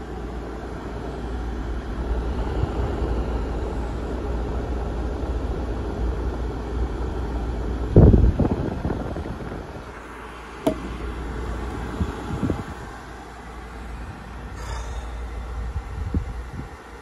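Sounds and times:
airflow buffeting microphone: 0.0s - 17.0s
fan air rushing: 0.0s - 17.0s
sharp bump: 10.6s - 11.0s.

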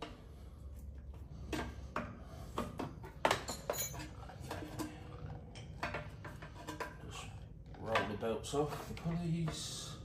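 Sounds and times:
spanner clinking on metal bolts: 3.2s - 5.0s.

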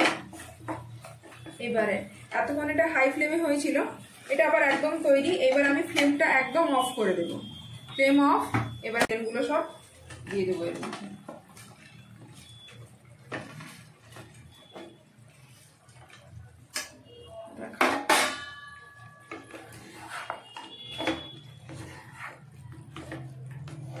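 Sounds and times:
spatula scraping a wok: 18.6s - 24.0s.

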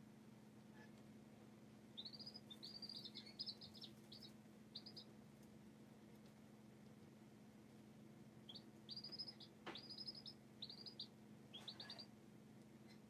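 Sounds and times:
faint low hum: 0.0s - 13.0s
baby chicks peeping: 1.8s - 13.0s.

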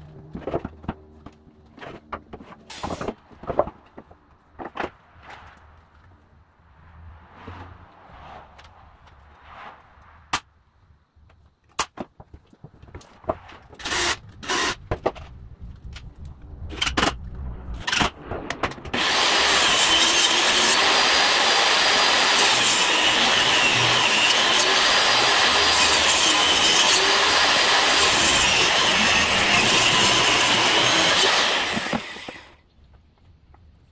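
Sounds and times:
table saw cutting wood: 13.8s - 14.8s, 18.9s - 32.6s.

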